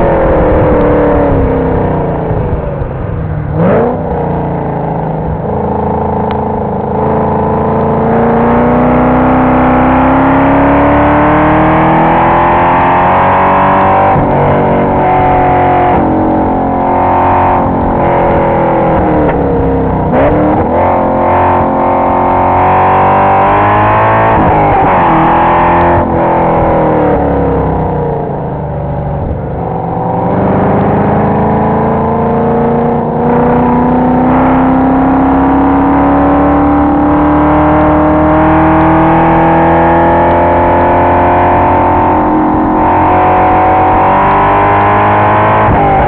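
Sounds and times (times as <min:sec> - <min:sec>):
car engine accelerating and shifting: 0:00.0 - 0:46.0.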